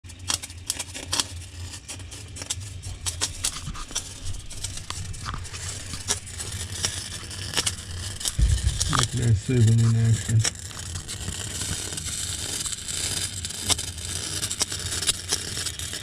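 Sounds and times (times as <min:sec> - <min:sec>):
crackling and popping: 0:00.1 - 0:16.0
low steady hum: 0:08.3 - 0:10.5.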